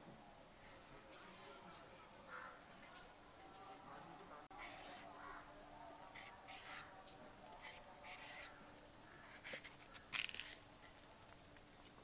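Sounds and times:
knife scraping vegetables: 4.6 - 5.2.

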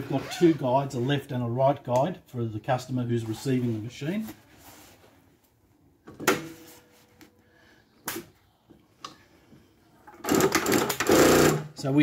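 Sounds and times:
sewing machine running: 10.2 - 11.7.

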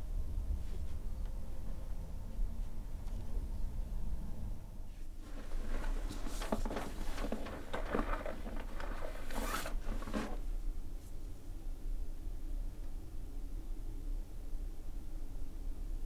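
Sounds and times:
steady low hum: 0.0 - 16.0
cloth rustling and rasping: 5.2 - 10.5.

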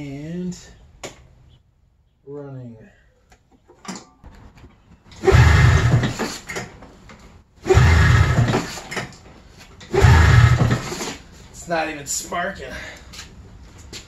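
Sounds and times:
snowmobile engine cranking: 5.1 - 6.6, 7.6 - 9.2, 9.8 - 11.2.

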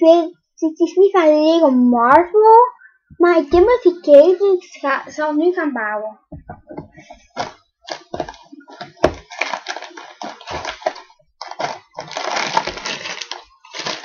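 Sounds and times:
packaging crackling and rustling: 7.3 - 14.0.

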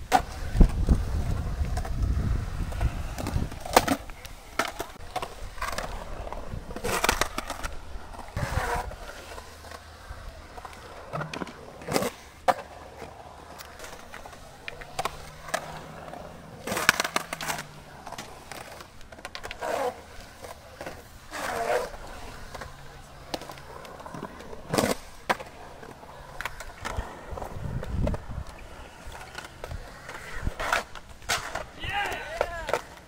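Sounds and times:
skateboard clacks and scrapes: 0.0 - 33.0
skateboard wheels rolling on concrete: 0.0 - 33.0.

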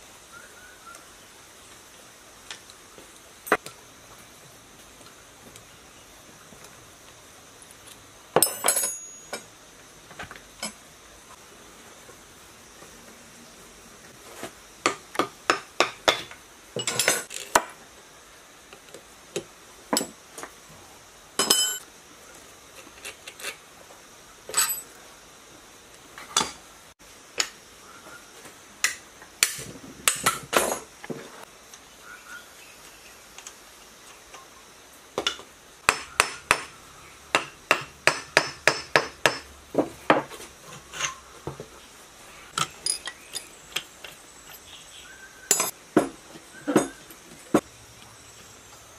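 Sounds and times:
metallic clinks and taps: 8.4 - 9.5, 21.4 - 21.8, 24.5 - 25.0, 45.5 - 45.8
tools clattering on metal bench: 8.4 - 9.5, 16.1 - 17.6, 21.4 - 21.8, 24.5 - 25.0, 30.0 - 30.9, 42.6 - 43.5, 45.5 - 47.6
hammer striking metal bar: 35.9 - 36.7, 37.3 - 39.5.

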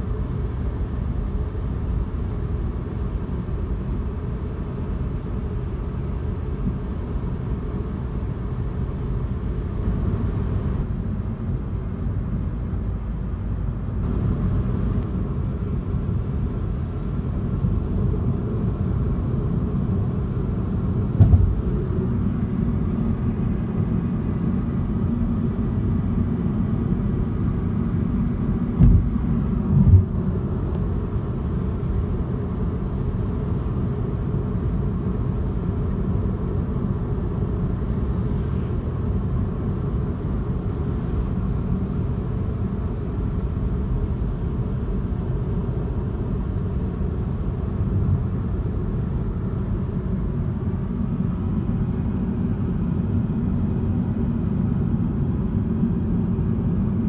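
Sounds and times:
car cabin road and engine noise: 0.0 - 57.0
brief thumps: 21.2 - 21.7, 28.8 - 30.2.

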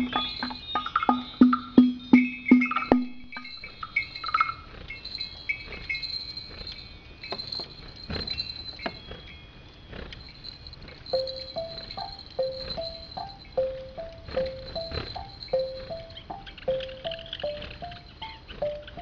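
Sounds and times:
wood-block clicking pattern: 0.0 - 4.6, 11.1 - 19.0
low held tone: 11.1 - 18.0.

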